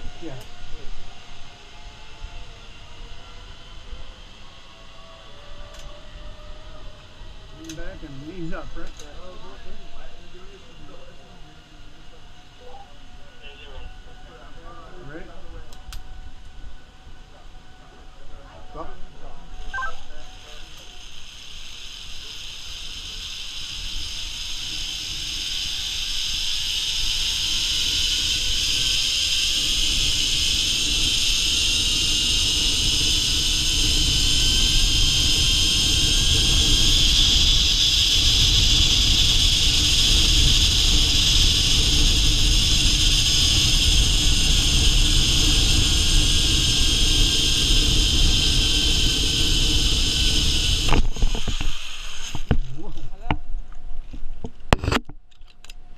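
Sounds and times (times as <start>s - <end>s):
pulleys whirring on steel cable: 18.7s - 52.6s.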